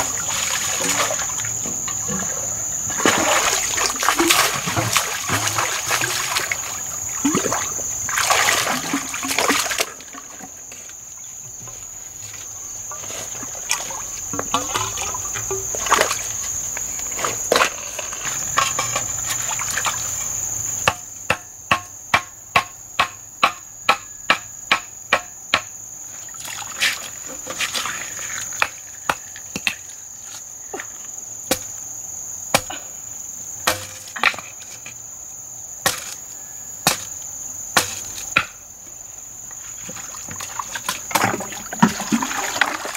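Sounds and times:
water splashing in a stream: 0.0 - 10.6, 12.9 - 17.8, 18.4 - 20.4, 26.3 - 29.5, 39.8 - 42.9
insect drone: 0.0 - 42.9
stone pounding wooden stake: 33.6 - 34.4.

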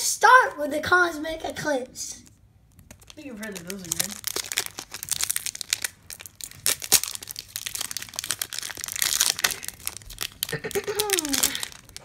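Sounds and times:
foil wrapper tearing and crinkling: 2.8 - 12.0.

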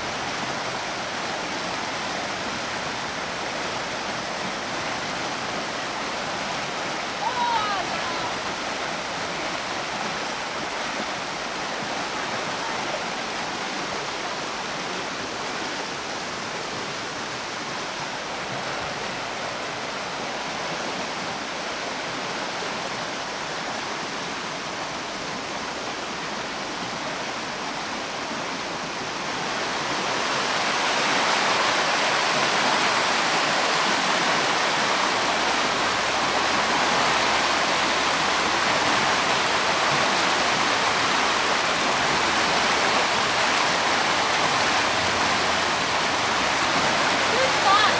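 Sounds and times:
creek water rushing: 0.0 - 47.9.

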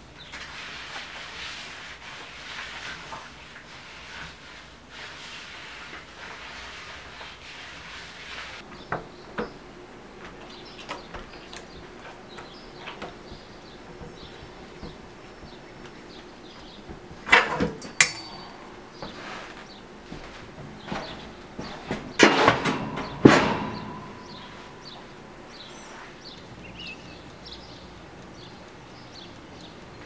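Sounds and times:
tool scraping across a sheet: 0.3 - 8.7, 19.0 - 26.2
faint steady hum: 8.6 - 30.0
metal hoop knocking and clicking: 16.8 - 19.1.

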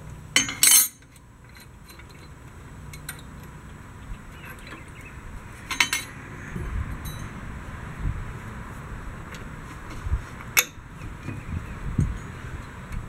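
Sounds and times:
wrench clanking on metal: 0.4 - 2.3, 5.7 - 6.2.

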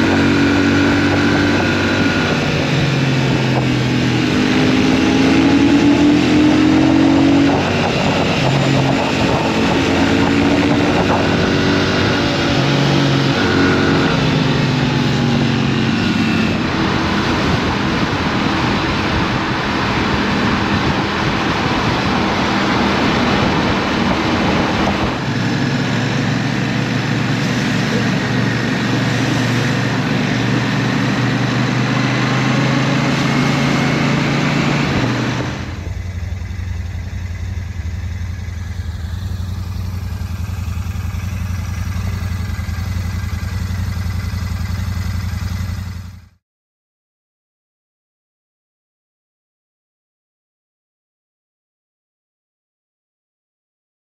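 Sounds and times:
wind noise: 0.0 - 36.1
motorcycle engine running: 0.0 - 46.4.

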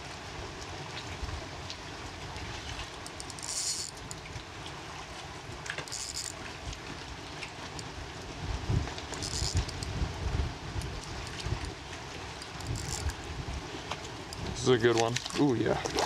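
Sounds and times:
wind buffeting microphone: 8.4 - 11.8.

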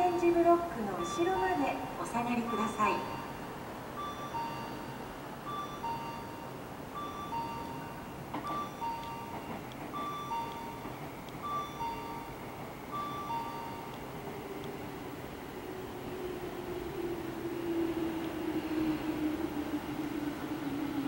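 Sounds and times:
two-note ding-dong chime: 4.0 - 9.4.

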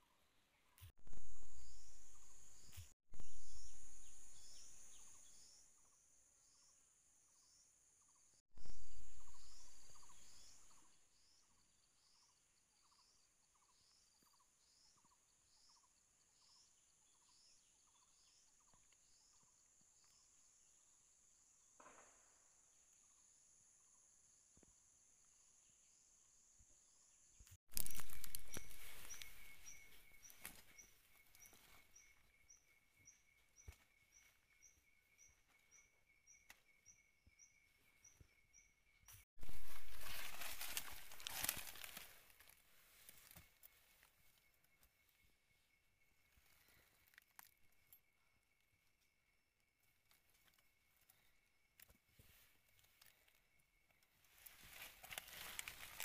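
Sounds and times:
insect drone with chirps: 1.1 - 51.9
rustles and clicks: 27.7 - 31.9, 39.4 - 44.4, 54.3 - 56.0.

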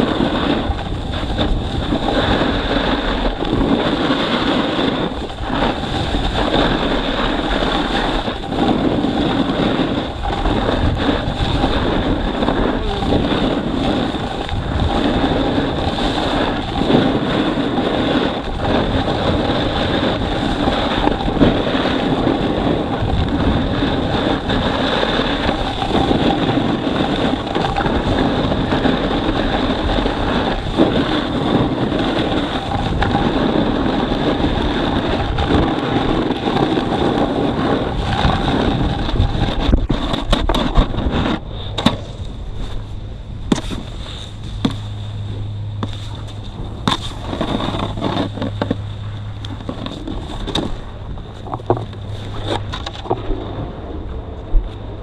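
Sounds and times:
wind buffeting microphone: 0.0 - 55.0
faint scrapes and knocks: 45.8 - 53.3.

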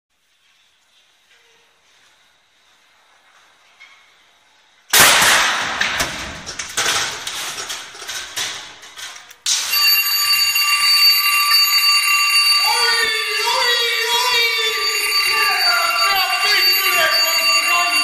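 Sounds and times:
high-pitched electronic alarm: 9.5 - 18.0.

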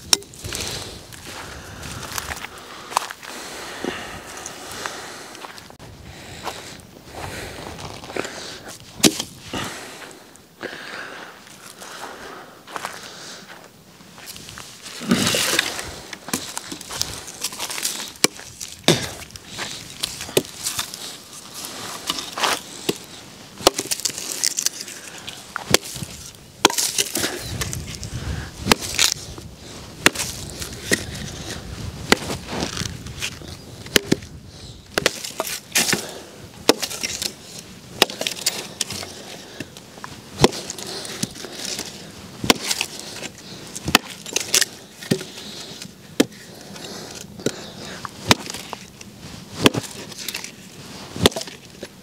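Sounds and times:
dry wood cracking and snapping: 0.0 - 3.2, 14.2 - 52.0
branches rustling: 0.0 - 52.0.

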